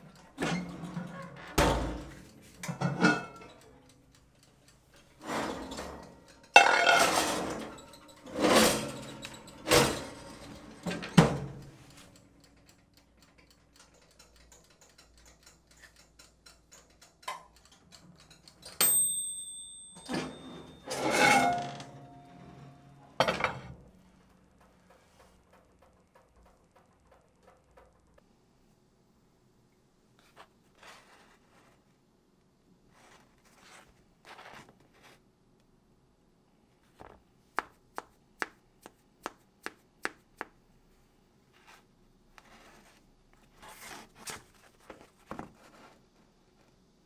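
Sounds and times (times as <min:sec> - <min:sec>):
pots and utensils clattering: 0:00.0 - 0:03.6, 0:05.2 - 0:11.8, 0:19.8 - 0:23.8.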